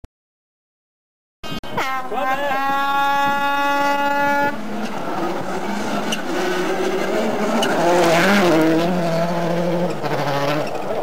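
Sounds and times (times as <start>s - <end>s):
rally car engine passing: 3.0s - 11.0s.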